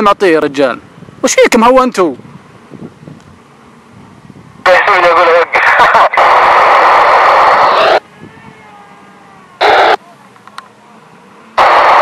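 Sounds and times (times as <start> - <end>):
radio static hiss: 4.6 - 8.0, 9.6 - 10.0, 11.6 - 12.0.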